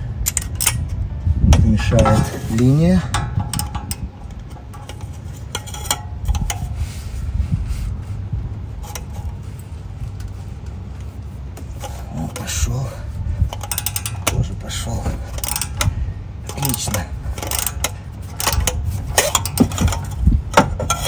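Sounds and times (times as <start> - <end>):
ratchet wrench clicking: 0.2 - 0.9, 3.1 - 6.6, 13.5 - 21.0.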